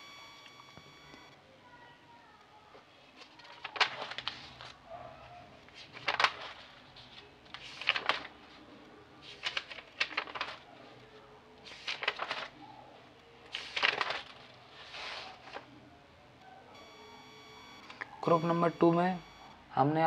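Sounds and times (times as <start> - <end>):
rustling and clicking handling: 2.7 - 4.8, 5.6 - 15.7.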